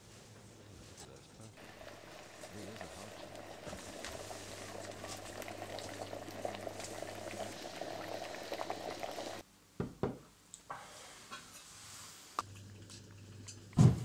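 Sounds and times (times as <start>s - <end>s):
liquid boiling and bubbling: 1.6s - 9.4s, 12.4s - 14.0s.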